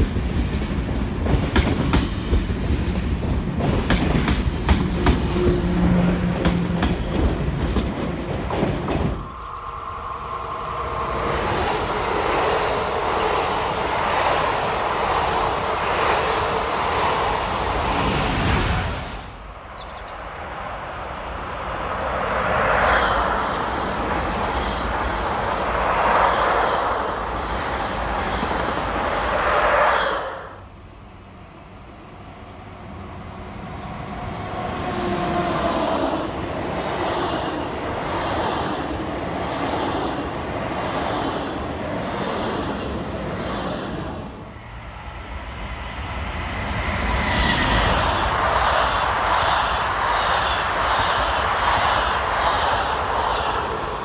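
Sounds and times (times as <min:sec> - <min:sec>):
train rumble and rail noise: 0:00.0 - 0:54.0
falling whine: 0:09.1 - 0:14.5.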